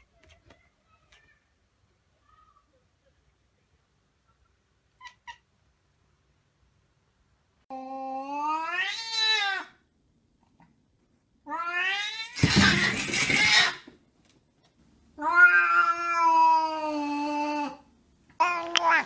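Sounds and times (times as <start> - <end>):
cats caterwauling: 7.7 - 9.7, 11.4 - 13.8, 15.2 - 17.8.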